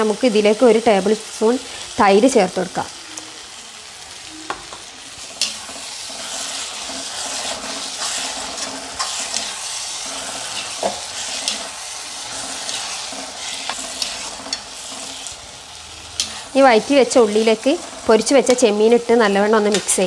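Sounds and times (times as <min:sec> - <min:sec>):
masala sizzling in a frying pan: 0:00.0 - 0:20.0
metal spoon scraping a pan: 0:05.1 - 0:18.9, 0:19.6 - 0:20.0.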